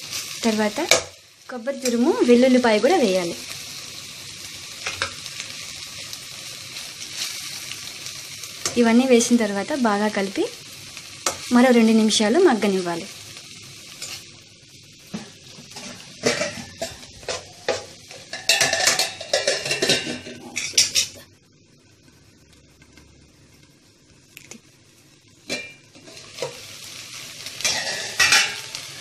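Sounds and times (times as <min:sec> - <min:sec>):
light sizzling: 0:00.0 - 0:29.0
ladle scraping and clinking pan: 0:15.7 - 0:21.2, 0:27.6 - 0:28.7.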